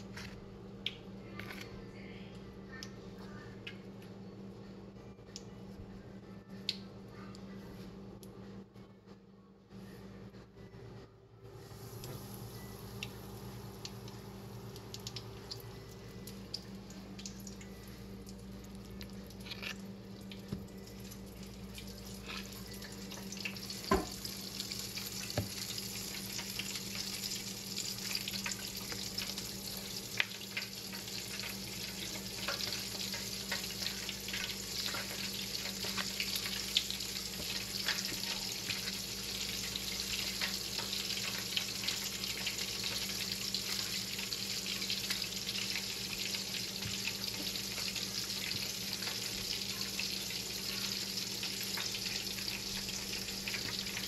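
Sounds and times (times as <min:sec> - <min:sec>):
chicken sizzling in hot oil: 0:21.2 - 0:54.0.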